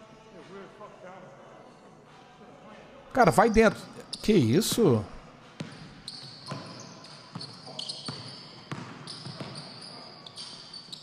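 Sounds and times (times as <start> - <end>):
sneaker squeaks: 5.6 - 11.0
basketball dribbling on wooden floor: 8.1 - 9.6.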